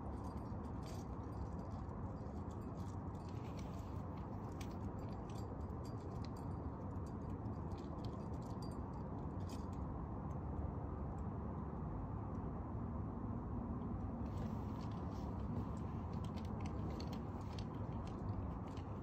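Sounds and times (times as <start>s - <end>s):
climbing gear clinking: 0.0s - 9.7s, 14.3s - 19.0s
low outdoor rumble: 0.0s - 19.0s.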